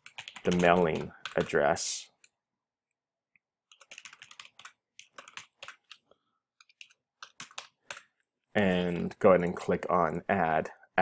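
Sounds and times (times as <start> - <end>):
computer keyboard typing: 0.0 - 2.4, 3.6 - 8.2.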